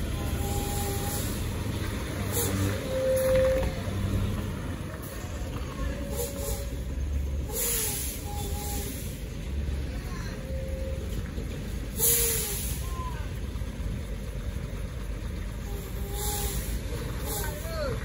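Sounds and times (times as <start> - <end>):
diesel truck rumbling: 0.0 - 18.0
air brakes hissing: 0.2 - 1.6, 2.2 - 3.6, 6.0 - 9.4, 11.9 - 13.2, 15.8 - 17.9.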